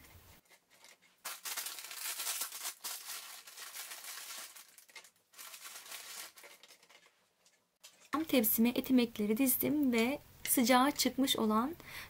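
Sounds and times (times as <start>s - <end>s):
dry toasts rustling and scraping: 0.2s - 1.5s, 4.1s - 8.2s.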